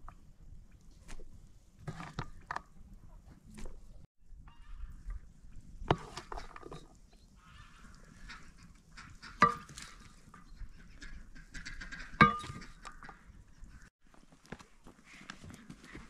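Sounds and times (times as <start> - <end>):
wooden spoon knocking enamel bowl: 12.2 - 12.6.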